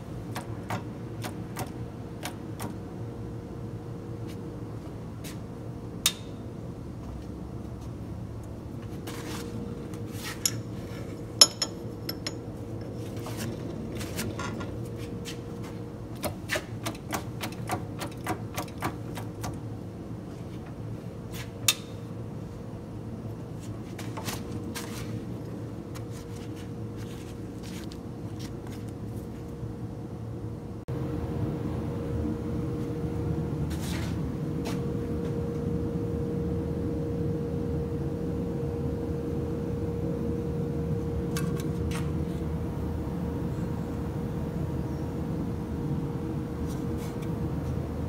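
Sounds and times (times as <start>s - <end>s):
high metallic ring: 11.4s - 12.5s.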